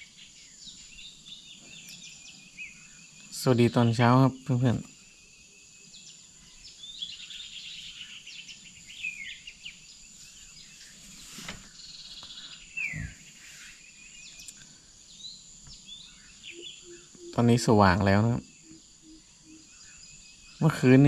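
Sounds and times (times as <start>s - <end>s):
birdsong chirps and trills: 0.0s - 21.0s
high-pitched insect drone: 11.8s - 21.0s.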